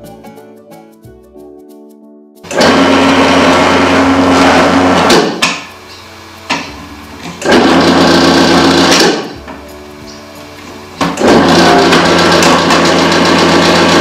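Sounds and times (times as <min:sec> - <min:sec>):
food processor motor running: 0:02.5 - 0:05.2, 0:07.4 - 0:09.3, 0:11.2 - 0:14.0.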